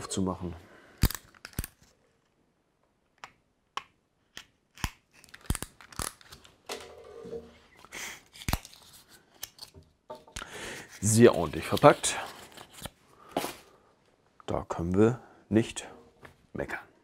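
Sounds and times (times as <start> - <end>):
scissors snipping tape: 1.0 - 1.8, 3.2 - 6.5, 8.3 - 9.7.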